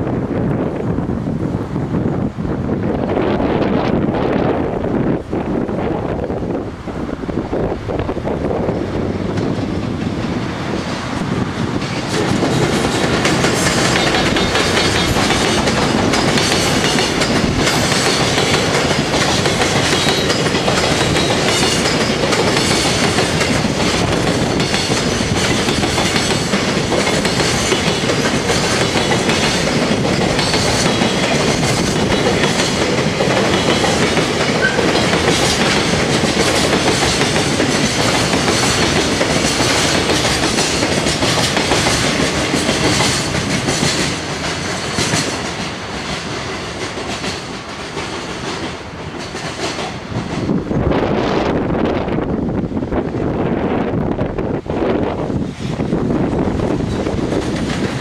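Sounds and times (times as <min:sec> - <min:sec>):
freight train passing: 0:00.0 - 0:58.0
wheels clattering on rails: 0:08.7 - 0:50.8, 0:55.3 - 0:58.0.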